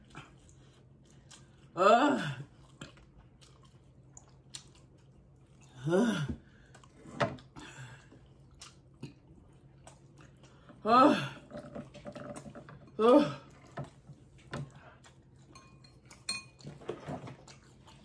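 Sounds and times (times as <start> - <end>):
chewing and mouth clicks: 0.0 - 1.8, 2.5 - 5.8, 6.6 - 10.8, 13.5 - 18.0
person moaning: 1.8 - 2.5, 5.8 - 6.4, 10.8 - 11.5, 13.0 - 13.5.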